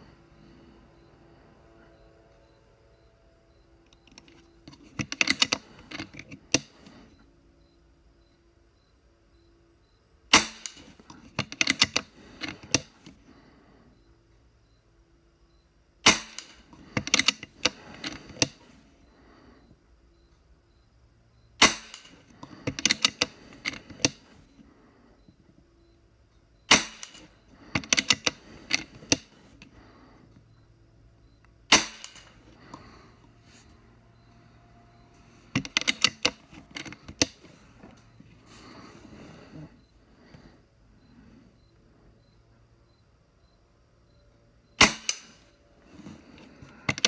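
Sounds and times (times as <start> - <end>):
rifle shots: 10.3 - 10.8, 16.0 - 16.6, 21.6 - 22.1, 26.7 - 27.2, 31.7 - 32.3, 44.8 - 45.4.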